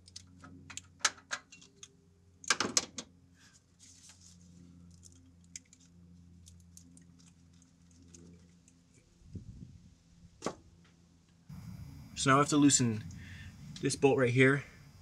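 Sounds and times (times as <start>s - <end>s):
steady low hum: 3.2s - 15.0s.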